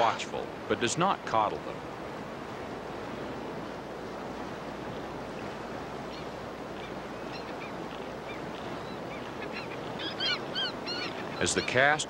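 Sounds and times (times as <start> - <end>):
river water rushing over rocks: 0.0 - 6.8
faint bird calls: 6.0 - 12.0.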